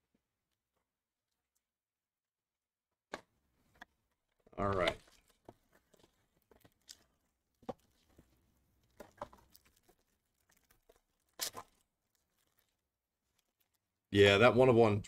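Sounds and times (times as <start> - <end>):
foil wrapper crinkling and tearing: 8.8 - 13.9.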